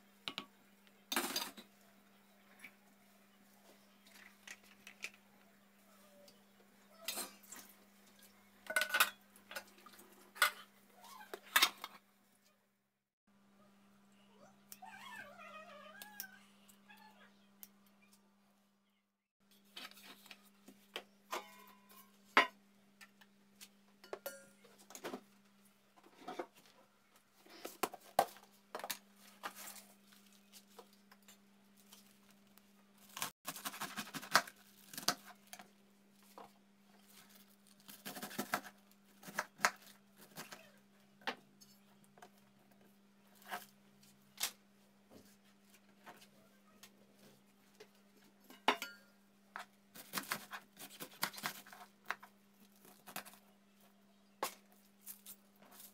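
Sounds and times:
metal bowl and cutting board clinking: 21.3s - 22.5s, 24.0s - 24.6s, 48.5s - 49.2s
cabbage leaves rustling and tearing: 33.0s - 35.6s.

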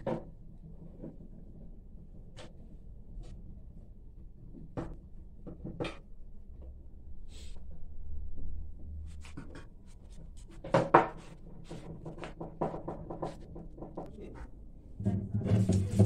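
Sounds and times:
low rumble: 6.7s - 9.4s.

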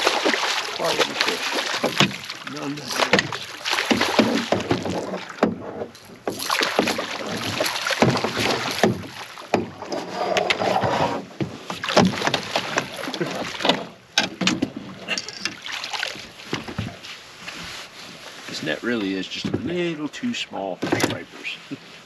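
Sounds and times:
fish thrashing and splashing: 0.0s - 9.8s, 11.6s - 14.0s, 14.8s - 17.0s
sharp knocks: 3.0s - 9.8s.

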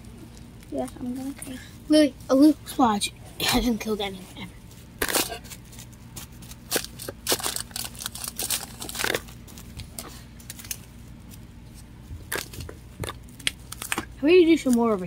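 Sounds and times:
plastic crinkling: 4.7s - 15.0s.

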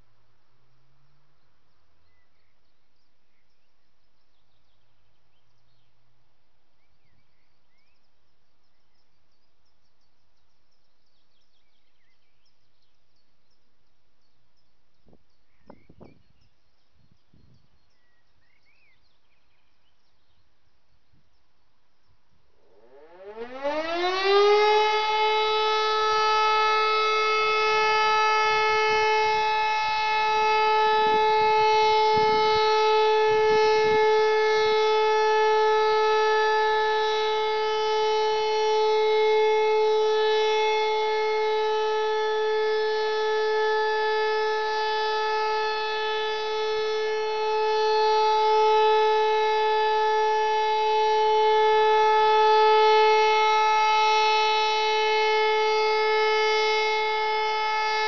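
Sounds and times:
siren rising to steady tone: 22.6s - 58.0s.

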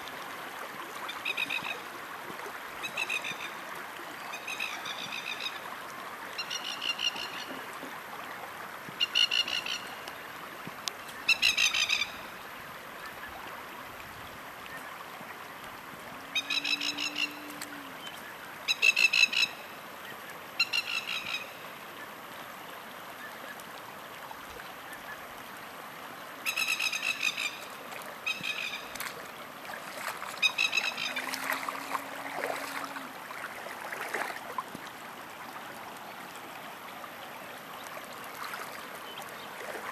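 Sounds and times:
shallow water running: 27.7s - 39.9s.

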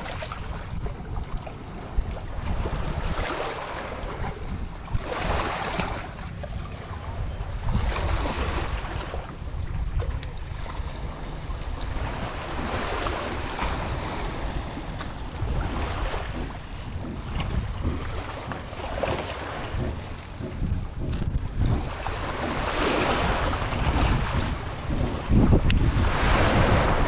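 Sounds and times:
small waves washing onto shore: 0.0s - 27.0s
wind rumbling on microphone: 0.0s - 27.0s.

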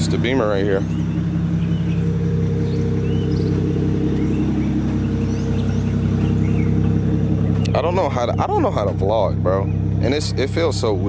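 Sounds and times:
car engine idling: 0.0s - 11.0s
faint bird chirps: 0.2s - 10.1s.

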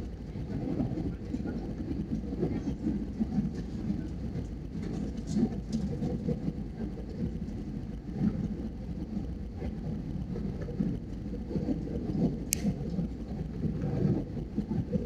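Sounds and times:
jet engine cabin rumble: 0.0s - 15.0s
sharp high click: 12.5s - 12.7s.

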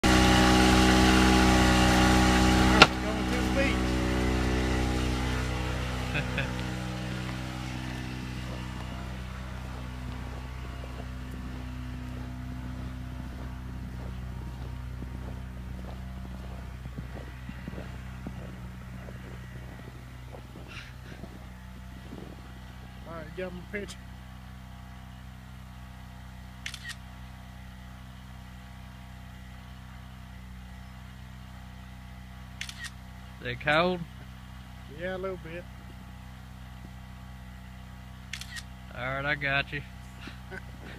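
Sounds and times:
motor humming: 0.0s - 40.9s
footsteps crunching in snow: 0.1s - 24.6s, 40.0s - 40.9s.

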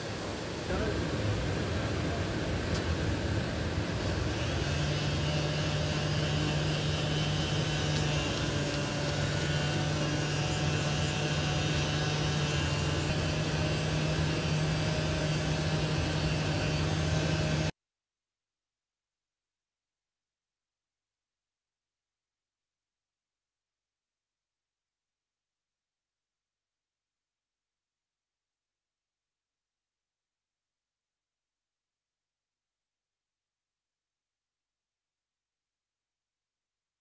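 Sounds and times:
air sander running: 0.0s - 17.7s.

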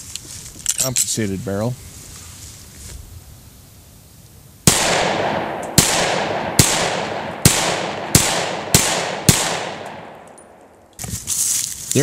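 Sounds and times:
pistol shots echoing: 4.7s - 10.8s.

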